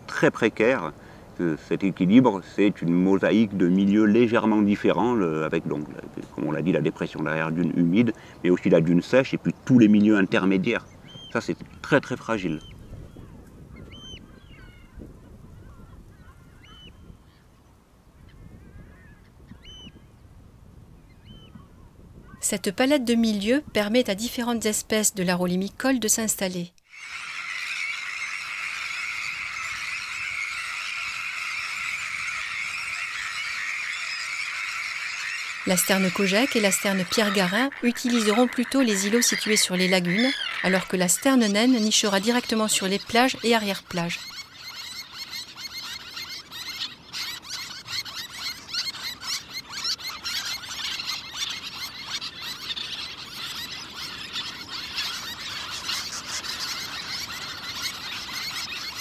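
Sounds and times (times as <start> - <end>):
tern colony calling: 26.9 - 59.0.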